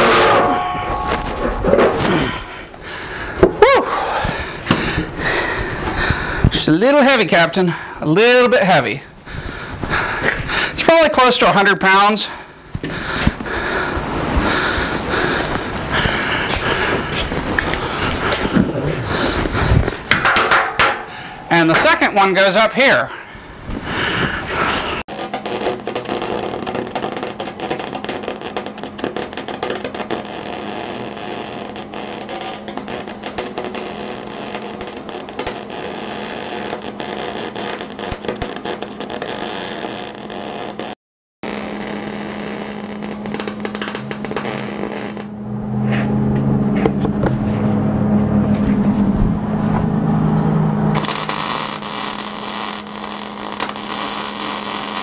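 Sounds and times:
low hum: 0.0s - 6.4s, 41.5s - 55.0s
arc welding crackling sizzle: 25.0s - 45.4s, 50.9s - 55.0s.

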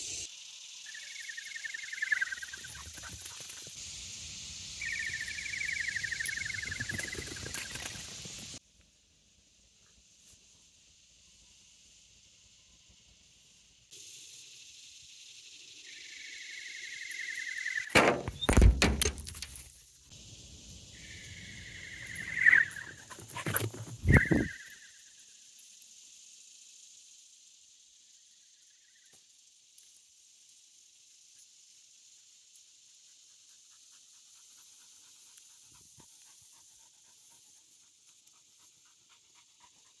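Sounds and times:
loud thumps and knocks: 18.0s - 19.4s
flying disc whistle: 21.0s - 23.0s, 24.0s - 25.0s
dog panting: 33.8s - 40.0s.

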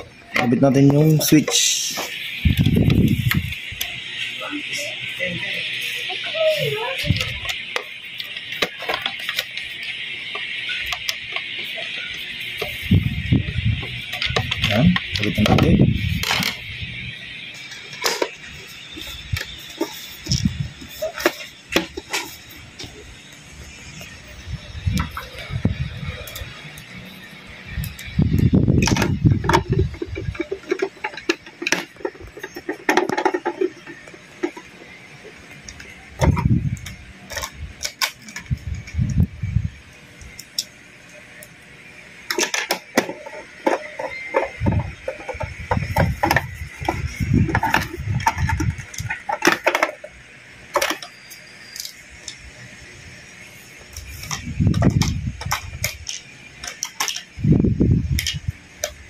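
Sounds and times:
blender parts clicking and knocking: 17.4s - 22.9s, 27.7s - 35.0s, 35.6s - 39.1s, 40.2s - 52.6s, 53.4s - 59.0s.

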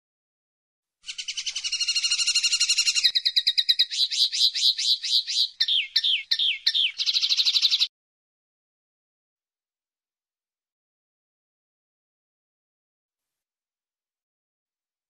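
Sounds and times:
linnet singing: 1.1s - 7.9s.

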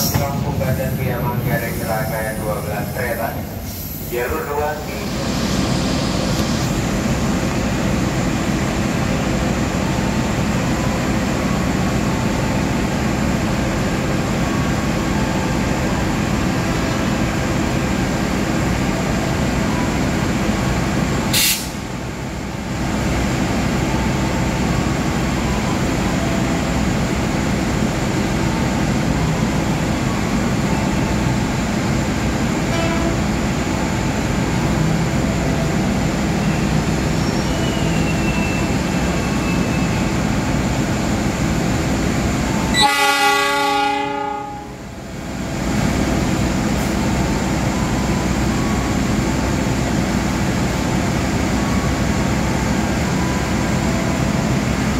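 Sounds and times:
diesel locomotive idling: 0.0s - 54.9s
sharp hiss of air: 3.5s - 4.1s, 21.3s - 21.8s.

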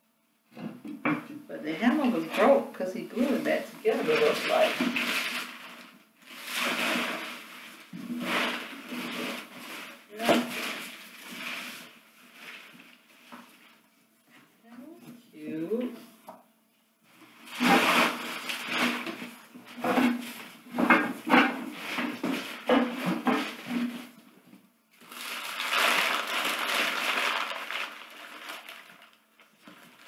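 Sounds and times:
packing material crinkling: 3.2s - 13.8s, 17.4s - 20.6s, 25.0s - 30.0s
rustling in cardboard box: 25.1s - 30.0s.

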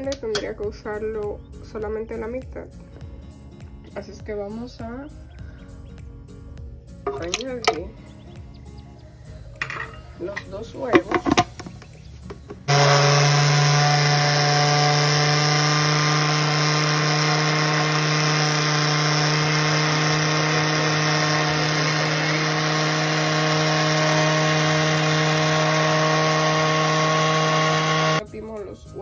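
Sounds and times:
blender running: 12.6s - 28.2s.

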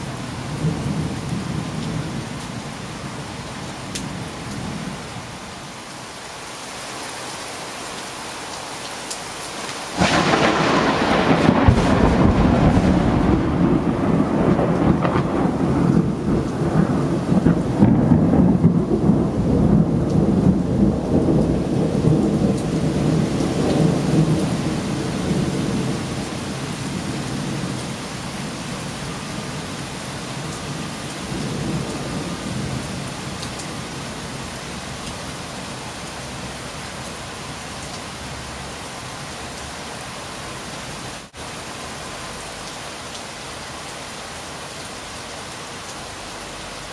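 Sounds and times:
rain falling: 0.0s - 46.9s
thunder rumbling: 10.0s - 35.5s.

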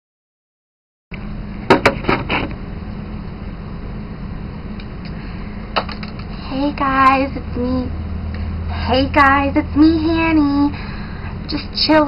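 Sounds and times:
steady low hum: 1.1s - 12.0s
camera handling knocks and bumps: 1.7s - 2.5s, 5.8s - 6.3s.

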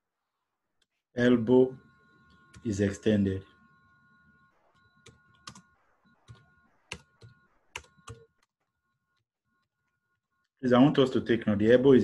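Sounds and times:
computer keyboard keystrokes: 5.0s - 5.6s, 6.3s - 8.2s.

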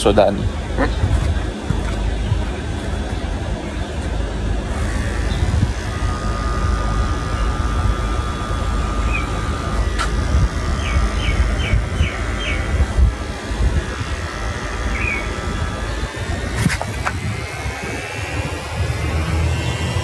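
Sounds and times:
hair clippers buzzing: 4.0s - 20.0s.

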